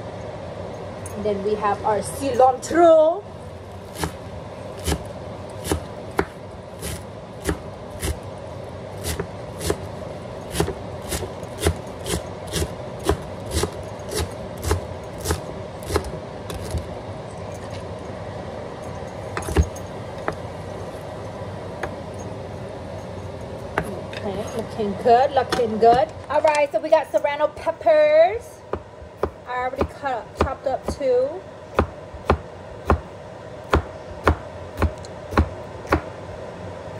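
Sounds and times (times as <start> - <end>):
steady hum: 0.0 - 36.9
knife chopping on wooden board: 3.9 - 4.2, 4.8 - 5.0, 5.6 - 8.2, 10.5 - 16.8, 33.7 - 36.1.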